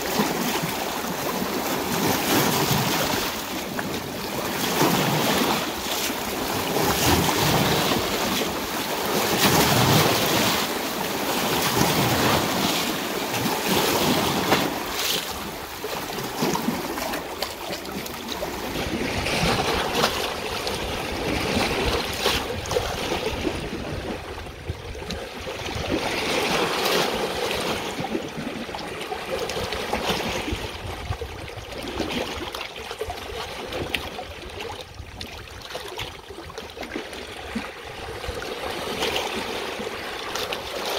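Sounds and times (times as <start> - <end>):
water rushing: 0.0 - 30.5.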